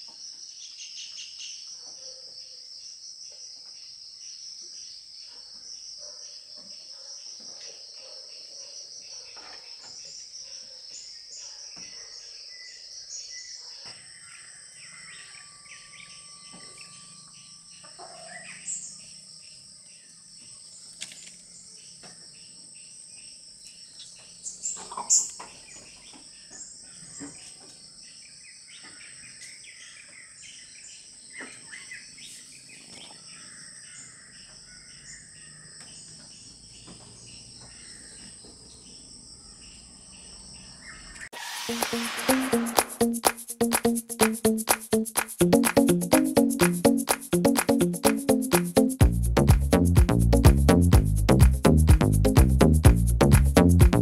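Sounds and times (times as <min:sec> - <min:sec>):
sudden sharp sounds: 0:41.4 - 0:54.0.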